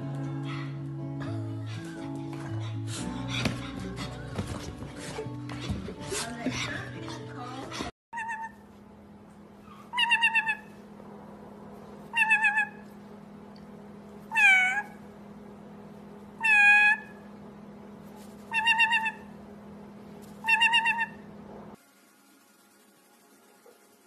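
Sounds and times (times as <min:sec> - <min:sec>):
parrot mimicking a meow: 0:08.2 - 0:08.6, 0:09.9 - 0:10.7, 0:12.1 - 0:12.8, 0:14.3 - 0:15.0, 0:16.4 - 0:17.2, 0:18.5 - 0:19.3, 0:20.4 - 0:21.2.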